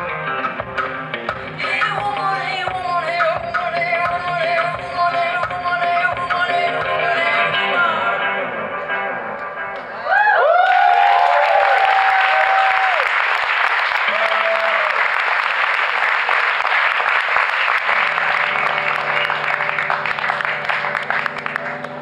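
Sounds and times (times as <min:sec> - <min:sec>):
audience applauding loudly: 0:10.4 - 0:22.0.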